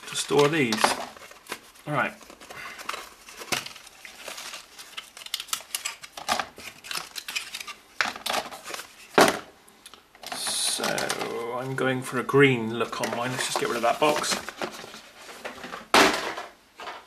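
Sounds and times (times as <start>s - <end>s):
plastic strips clicking and clattering: 0.0s - 11.4s.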